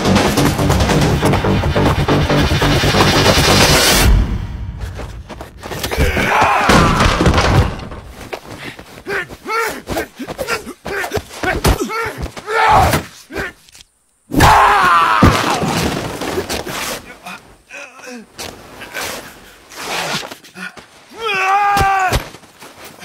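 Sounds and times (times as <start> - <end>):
thuds of punches and bodies: 5.3 - 8.5, 9.8 - 13.1, 21.7 - 22.4
men grunting and groaning: 5.7 - 7.8, 8.6 - 13.6.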